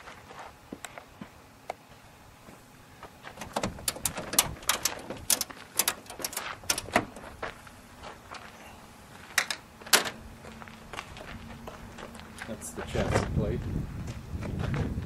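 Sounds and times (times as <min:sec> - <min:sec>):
metal catch clicks: 0:03.4 - 0:07.1.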